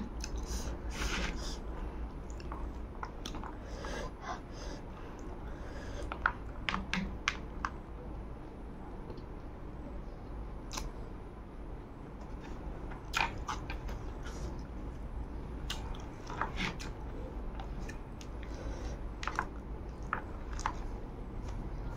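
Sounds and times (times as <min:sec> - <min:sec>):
chewing and wet mouth sounds: 0:00.0 - 0:03.6, 0:10.7 - 0:11.0, 0:12.2 - 0:21.9
mouth smacks and clicks: 0:10.7 - 0:10.9.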